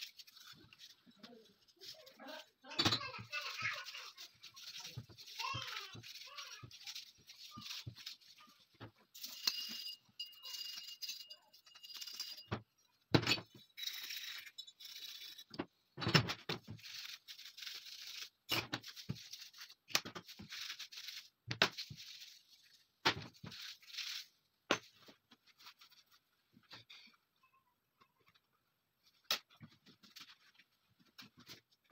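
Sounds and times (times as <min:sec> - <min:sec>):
rubbing and scraping metal: 0:16.6 - 0:24.4.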